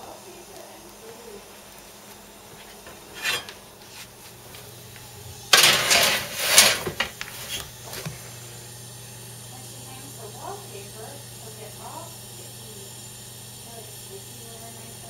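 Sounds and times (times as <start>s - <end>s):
skillet clattering on oven rack: 3.1s - 3.6s, 5.5s - 7.6s.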